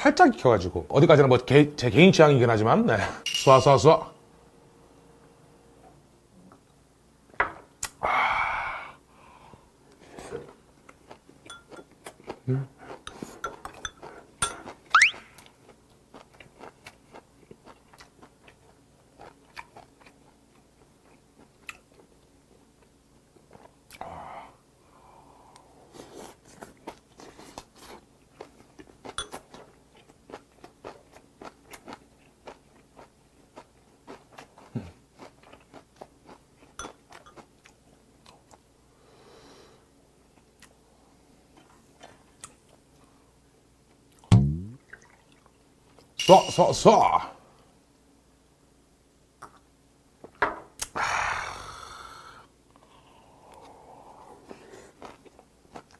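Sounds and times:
rising squeak: 0:15.0 - 0:15.2.

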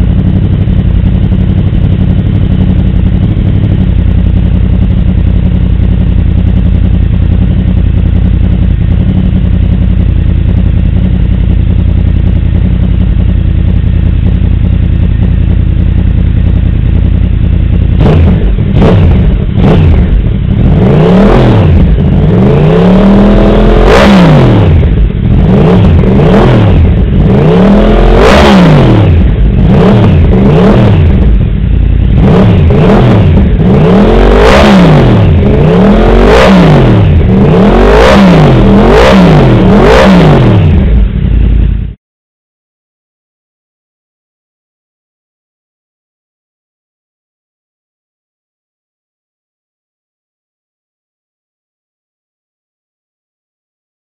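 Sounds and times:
motorcycle engine idling: 0:00.0 - 0:42.0
motorcycle engine revving: 0:00.0 - 0:42.0.

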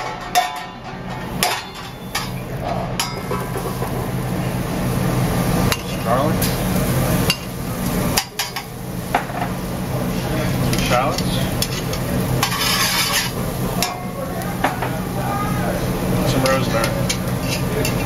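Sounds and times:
steady low hum: 0:00.0 - 0:18.0
metal tongs clinking in a pan: 0:00.1 - 0:02.4, 0:08.1 - 0:08.7, 0:10.7 - 0:14.9, 0:16.3 - 0:18.0.

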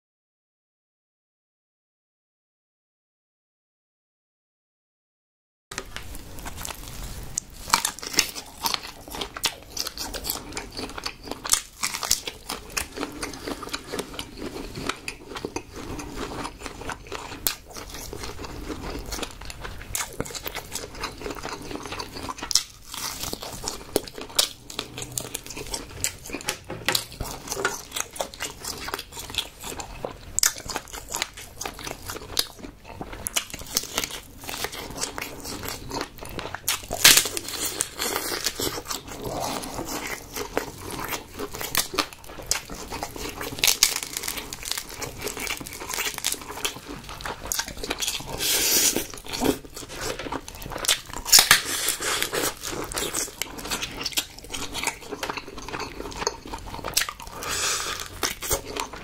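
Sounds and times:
wet chewing: 0:05.8 - 0:59.0
prawn shells cracking: 0:36.7 - 0:38.8, 0:43.2 - 0:59.0.

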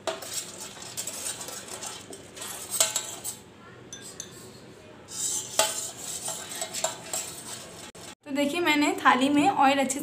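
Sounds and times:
metal spoon scraping steel plate: 0:00.0 - 0:03.4, 0:05.1 - 0:08.0.

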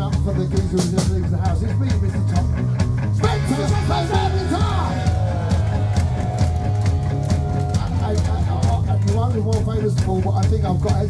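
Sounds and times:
punk rock band playing: 0:00.0 - 0:11.0
person singing or shouting: 0:03.2 - 0:06.5, 0:07.4 - 0:09.0.

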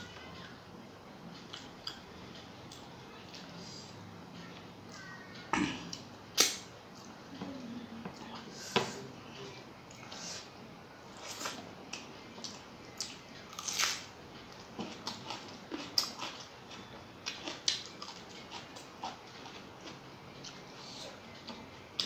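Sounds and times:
chewing: 0:14.6 - 0:22.0.

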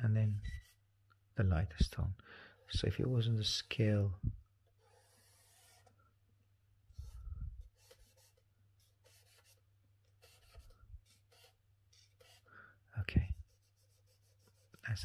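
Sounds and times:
charcoal scratching on paper: 0:00.2 - 0:00.8, 0:04.8 - 0:06.0, 0:06.9 - 0:12.5, 0:13.2 - 0:15.0.

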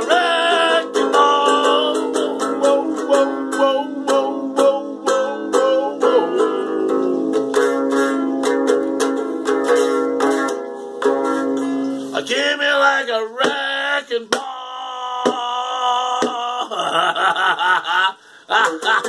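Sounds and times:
man singing wordlessly: 0:00.0 - 0:07.3, 0:12.1 - 0:17.9, 0:18.5 - 0:19.0
ukulele strummed chords: 0:00.0 - 0:16.5.

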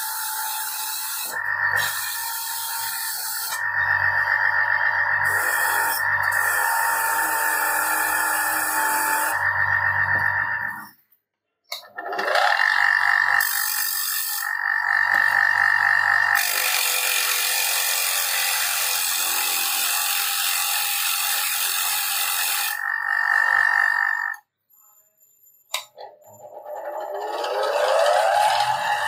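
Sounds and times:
bench grinder motor whine: 0:14.4 - 0:16.6, 0:26.4 - 0:29.0
wire wheel scraping metal: 0:25.8 - 0:29.0.

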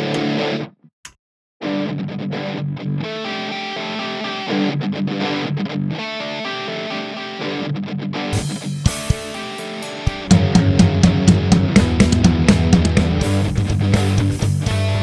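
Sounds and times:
distorted electric guitar chords: 0:00.0 - 0:00.8, 0:01.6 - 0:15.0
sharp drum hits: 0:08.4 - 0:13.5.

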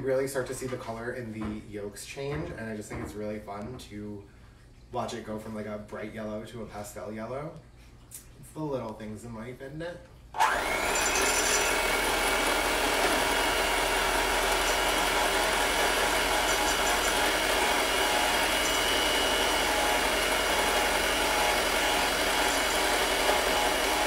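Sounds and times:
electric mixer whipping: 0:10.4 - 0:24.0.

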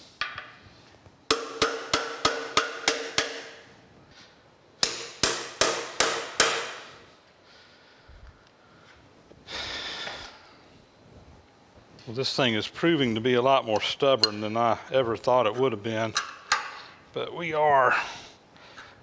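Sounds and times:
hammer ringing on metal: 0:01.3 - 0:03.5, 0:04.8 - 0:06.8.

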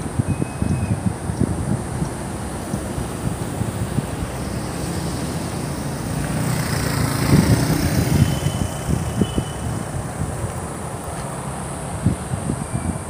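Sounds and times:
street traffic: 0:00.0 - 0:13.0
wind buffeting microphone: 0:00.0 - 0:13.0
vehicle passing: 0:02.3 - 0:11.8.

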